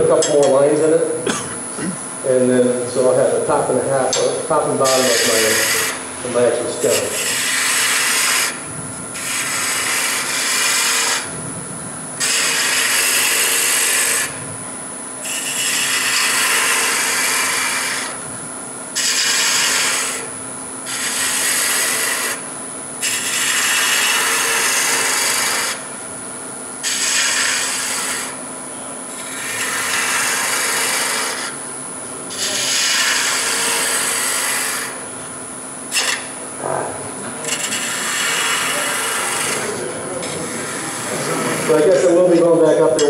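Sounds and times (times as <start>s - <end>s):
lathe humming: 0.0s - 43.0s
gouge hissing on spinning wood: 4.9s - 6.0s, 6.8s - 8.6s, 9.2s - 11.3s, 12.2s - 14.4s, 15.2s - 18.2s, 19.0s - 20.3s, 20.9s - 22.4s, 23.0s - 25.9s, 26.8s - 28.4s, 29.1s - 31.6s, 32.3s - 35.0s, 37.5s - 42.4s.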